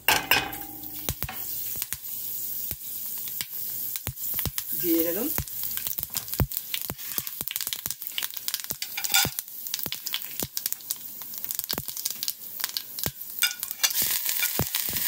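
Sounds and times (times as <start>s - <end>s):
seeds sizzling in hot oil: 0.0s - 15.0s.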